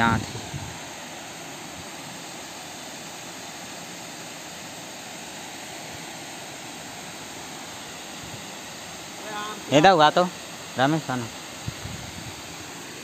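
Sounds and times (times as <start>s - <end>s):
steady rushing noise: 0.0s - 2.5s, 5.4s - 13.0s.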